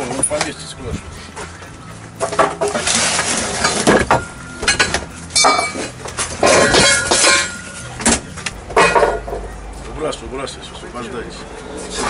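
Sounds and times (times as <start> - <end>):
metal pipes and boards clattering: 0.0 - 9.6
metal pipe ringing: 0.0 - 10.0.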